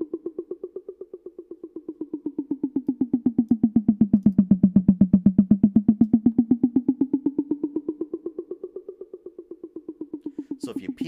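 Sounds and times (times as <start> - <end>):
rapid electronic drum hits: 9.9 - 11.0.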